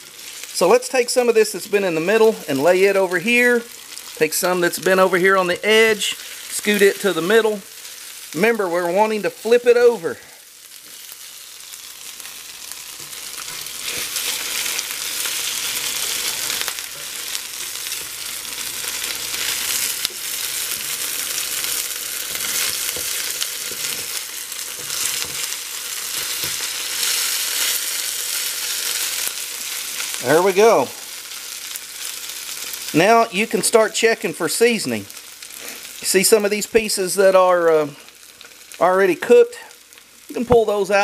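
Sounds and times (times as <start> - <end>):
vegetables sizzling in a skillet: 0.0 - 41.0
metal spatula scraping skillet: 12.9 - 28.0.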